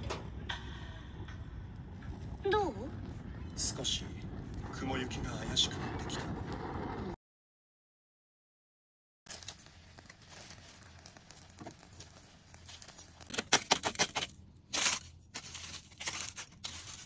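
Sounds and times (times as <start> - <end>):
charcoal embers crackling: 0.0 - 7.2, 9.3 - 17.0
aluminium foil crinkling: 9.3 - 17.0.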